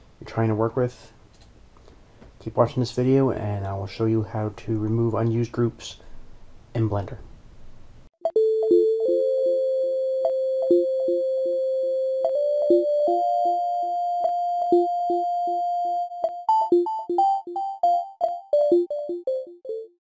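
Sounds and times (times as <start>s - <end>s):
synthesizer jingle: 10.2s - 20.0s.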